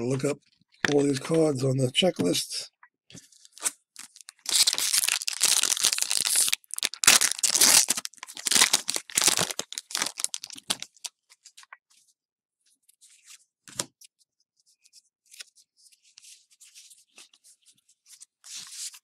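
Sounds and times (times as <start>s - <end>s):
foil wrapper tearing and crinkling: 3.5s - 11.1s.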